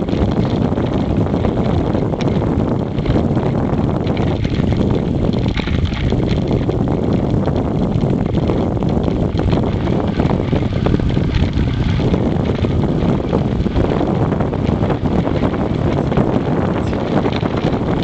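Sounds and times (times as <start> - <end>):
tyres rumbling on tarmac: 0.0 - 18.0
wind on microphone: 0.0 - 18.0.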